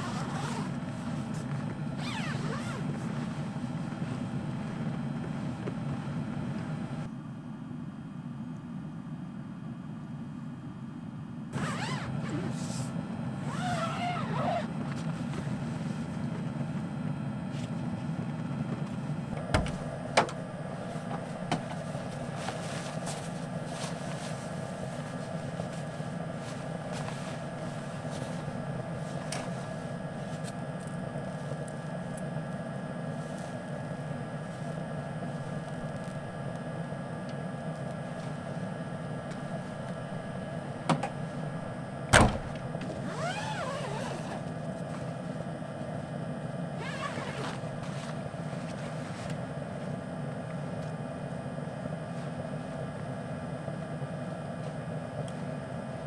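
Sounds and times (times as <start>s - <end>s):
car door thump: 19.4s - 20.4s, 42.1s - 42.6s.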